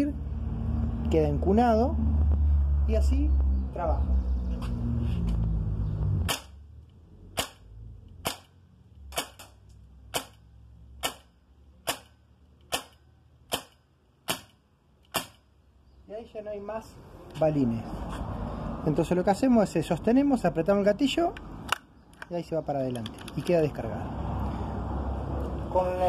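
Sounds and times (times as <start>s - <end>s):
air rifle shots: 7.3s - 10.4s, 11.0s - 15.5s.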